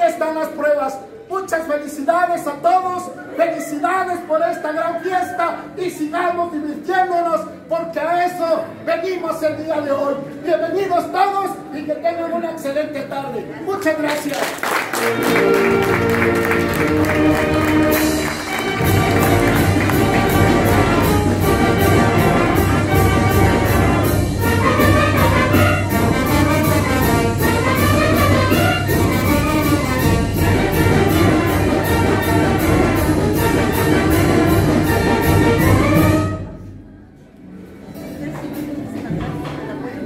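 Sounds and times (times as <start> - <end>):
trumpets and trombones: 14.9 - 36.6
percussion beat: 15.0 - 36.3.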